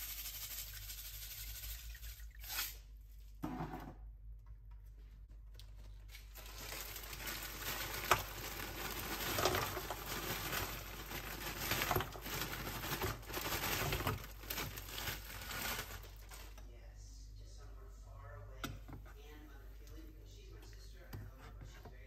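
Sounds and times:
plastic bag crinkling: 5.8 - 16.6.

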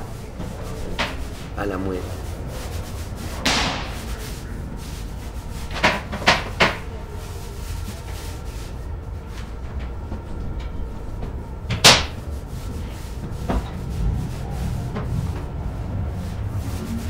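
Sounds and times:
low steady rumble: 0.0 - 17.0
sharp knocks: 3.4 - 4.2.

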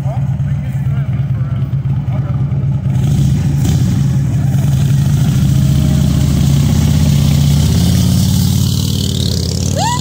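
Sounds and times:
motorcycle engines droning: 0.0 - 10.0.

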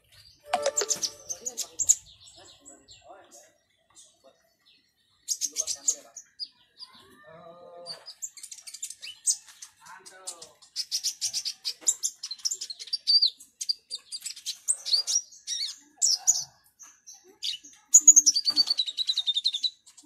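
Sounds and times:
bird singing high chirps: 0.0 - 7.1, 10.4 - 20.0
bird trill falling in pitch: 0.5 - 1.6.

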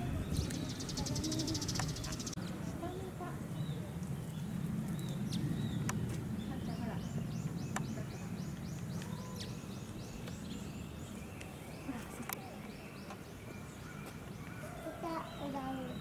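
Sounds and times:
low background murmur: 0.0 - 16.0
high arching chirps: 0.2 - 3.0.

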